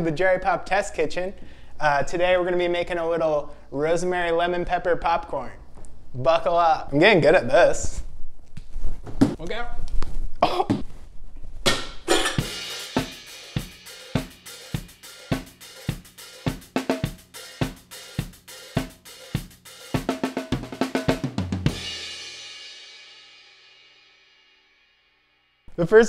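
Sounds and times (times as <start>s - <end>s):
drum kit playing a beat: 11.7s - 23.9s
cymbal crash ringing: 12.1s - 24.8s.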